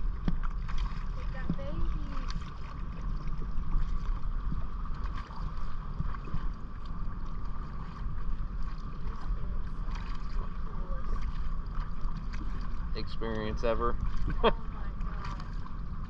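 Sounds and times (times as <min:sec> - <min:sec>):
wind buffeting microphone: 0:00.0 - 0:06.6
boat engine running: 0:00.0 - 0:16.0.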